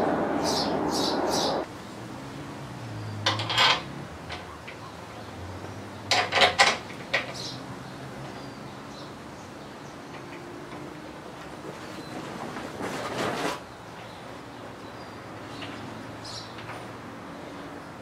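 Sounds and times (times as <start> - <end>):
metal clinks and clanks: 3.2 - 4.5.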